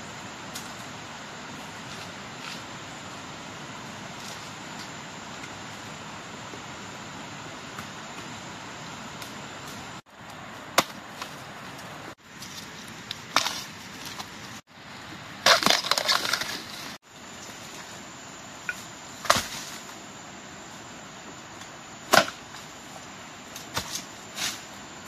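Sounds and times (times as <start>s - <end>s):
wood crackling and splintering: 15.4s - 16.8s.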